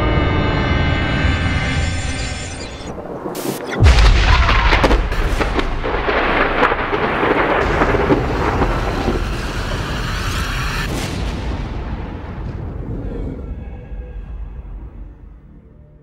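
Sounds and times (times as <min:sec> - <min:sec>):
heavy rain: 0:02.9 - 0:14.8
thunderclap: 0:02.9 - 0:15.6
rumbling thunder: 0:03.8 - 0:15.6.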